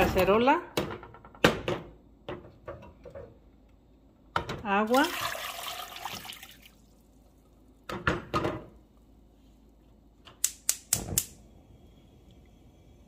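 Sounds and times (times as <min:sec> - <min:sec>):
water pouring into pot: 0:04.9 - 0:07.0.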